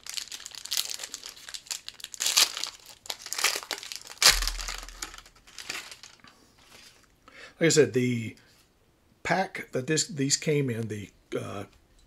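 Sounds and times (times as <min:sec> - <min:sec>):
foil wrapper crinkling and tearing: 0:00.0 - 0:06.3
low thump: 0:04.3 - 0:05.2.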